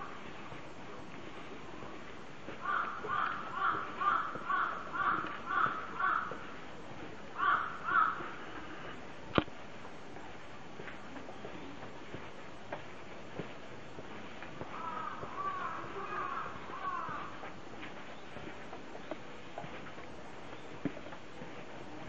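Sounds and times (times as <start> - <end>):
crow cawing: 2.6 - 6.5, 7.4 - 8.9, 14.7 - 17.5.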